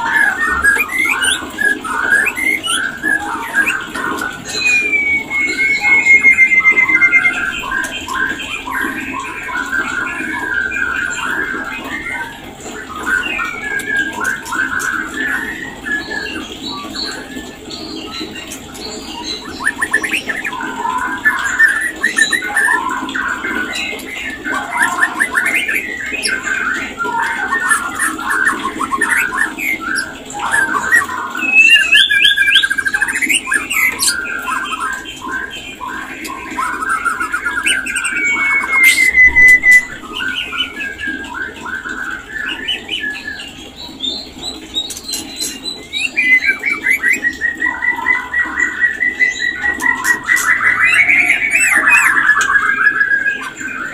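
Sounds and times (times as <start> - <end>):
long falling bird whistle: 0.0 - 8.1, 36.9 - 43.3
birds chirping and whistling: 0.0 - 53.9.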